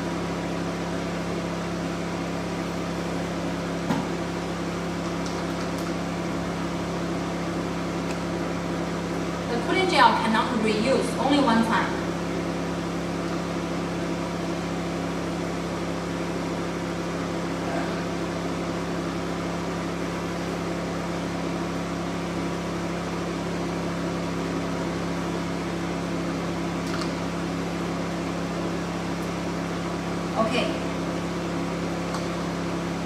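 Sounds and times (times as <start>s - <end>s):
machine hum with low tones: 0.0s - 33.0s.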